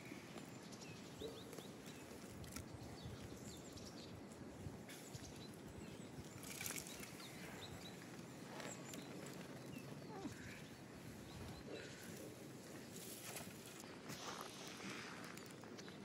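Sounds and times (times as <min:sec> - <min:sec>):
small birds chirping: 0:00.0 - 0:16.0
rustle: 0:04.8 - 0:16.0.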